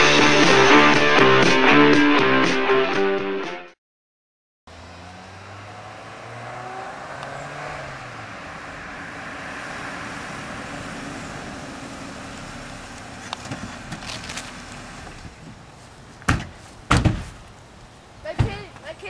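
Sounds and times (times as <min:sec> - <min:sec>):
car engine running: 0:04.7 - 0:15.3
tyres on road: 0:04.7 - 0:19.0.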